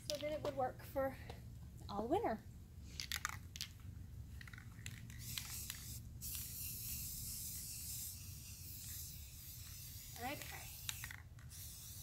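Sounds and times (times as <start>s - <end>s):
spray paint can hissing: 4.4s - 12.0s.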